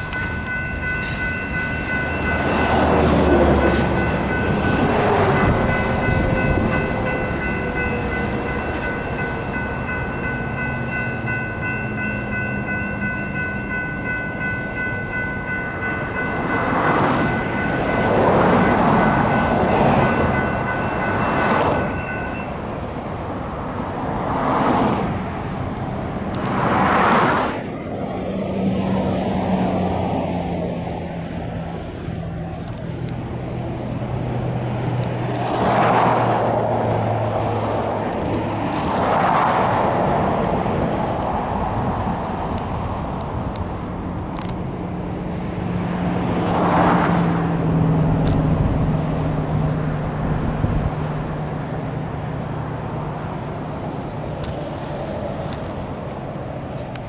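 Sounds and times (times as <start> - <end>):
electronic crossing bells ringing: 0.0 - 22.7
freight train passing: 0.0 - 57.0
road vehicles passing: 0.0 - 57.0.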